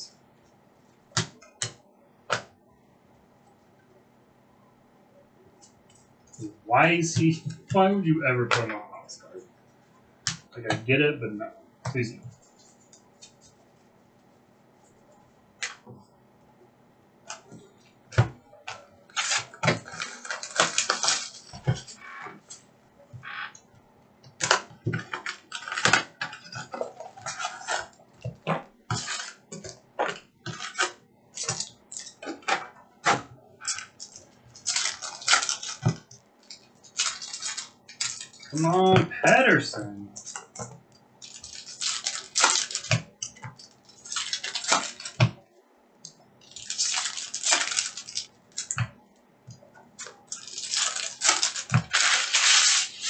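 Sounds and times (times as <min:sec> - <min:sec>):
foil card packs crinkling: 0:19.1 - 0:22.6, 0:24.4 - 0:28.0, 0:28.9 - 0:32.6, 0:33.6 - 0:38.8, 0:41.2 - 0:45.4, 0:46.4 - 0:48.8, 0:50.0 - 0:53.0.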